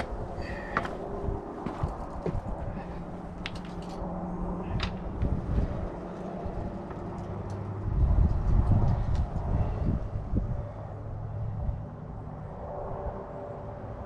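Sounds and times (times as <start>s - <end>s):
distant engine drone: 0.0s - 14.0s.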